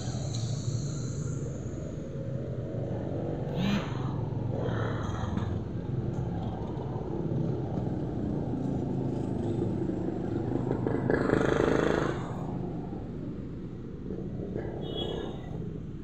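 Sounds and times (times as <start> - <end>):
low vehicle engine rumble: 0.0 - 16.0.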